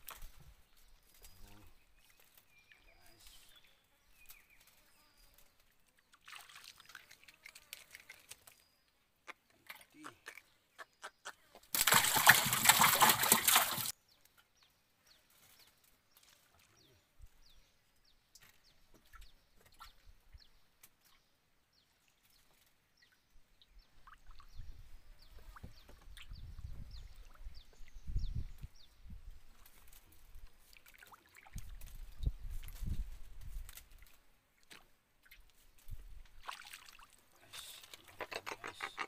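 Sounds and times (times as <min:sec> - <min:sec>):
river water splashing around boat: 0:06.2 - 0:07.9, 0:11.7 - 0:13.9, 0:36.4 - 0:37.2.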